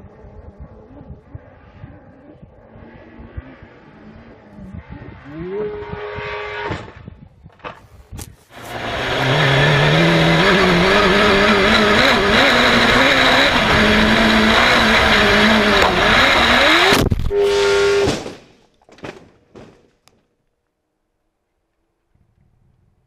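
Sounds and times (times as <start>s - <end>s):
motorcycle engine revving: 0.0s - 6.7s, 8.6s - 18.1s
loud crash impact: 16.9s - 19.8s.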